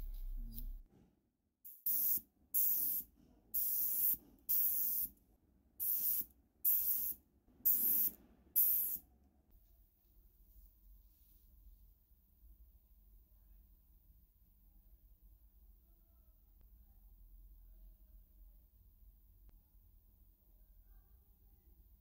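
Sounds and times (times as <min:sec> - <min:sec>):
spray paint hissing: 0:01.7 - 0:05.1, 0:05.8 - 0:09.0.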